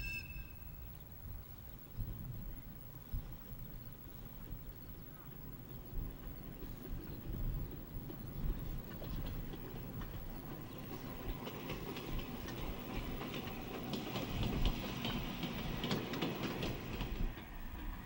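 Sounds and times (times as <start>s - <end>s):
low train rumble: 0.0s - 18.0s
train wheels clicking over rail joints: 5.4s - 18.0s.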